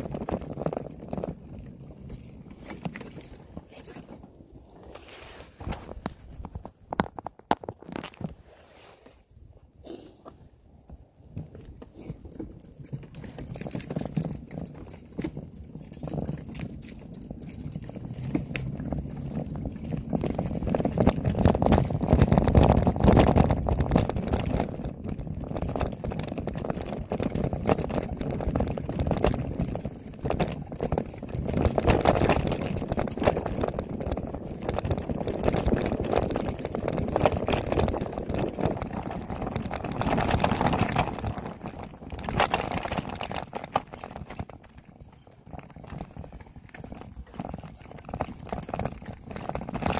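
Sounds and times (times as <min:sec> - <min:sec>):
bicycle rattling over dirt trail: 0:00.0 - 0:09.3, 0:10.7 - 0:49.9
wind buffeting microphone: 0:10.8 - 0:49.9.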